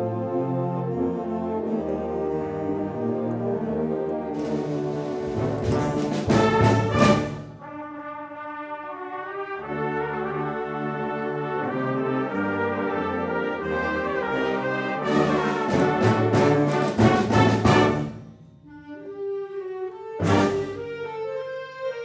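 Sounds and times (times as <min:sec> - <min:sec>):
concert band brass chords: 0:04.4 - 0:18.4, 0:20.2 - 0:21.0.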